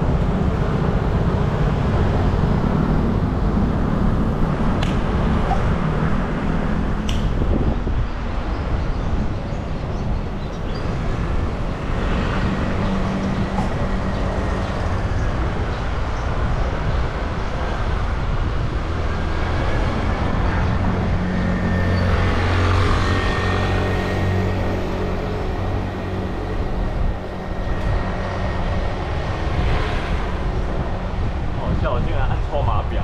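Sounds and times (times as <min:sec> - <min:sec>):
motor traffic engine hum: 0:00.0 - 0:33.0
road noise: 0:00.0 - 0:33.0
wind noise: 0:00.0 - 0:33.0.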